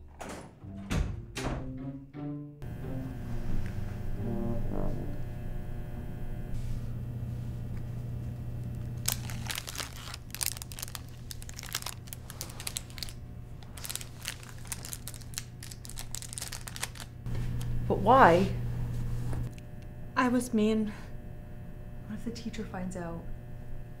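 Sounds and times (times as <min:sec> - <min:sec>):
background music with brass: 0:00.6 - 0:05.3
snack wrapper crinkling: 0:08.7 - 0:17.2.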